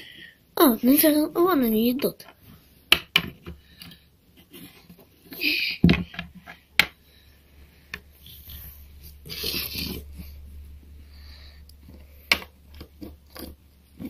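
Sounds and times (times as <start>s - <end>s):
plastic rubbing scrapes: 8.2s - 10.6s, 11.8s - 14.0s.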